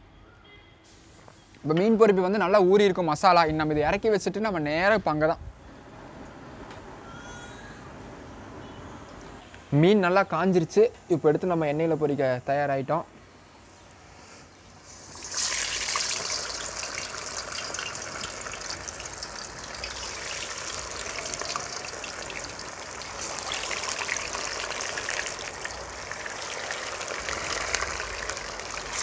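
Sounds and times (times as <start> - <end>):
fish deep-frying in hot oil: 14.8 - 29.0.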